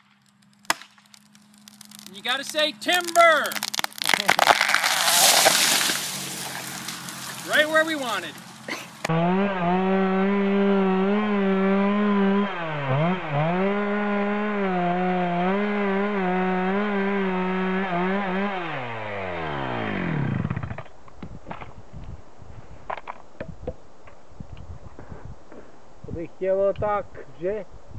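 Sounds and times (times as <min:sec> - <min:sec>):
chainsaw cutting wood: 0:00.0 - 0:20.9.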